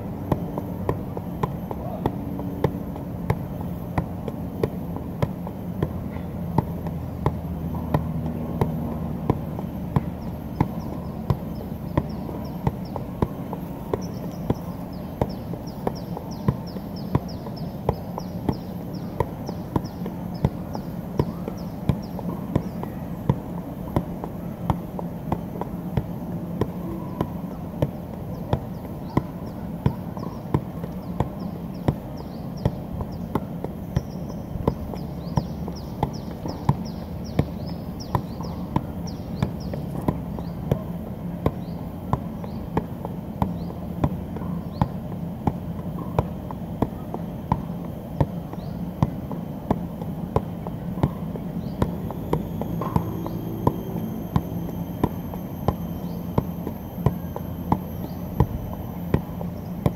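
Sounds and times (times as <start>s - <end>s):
low background hum: 0.0s - 59.9s
ball kicks thudding: 0.2s - 32.0s, 47.5s - 59.9s.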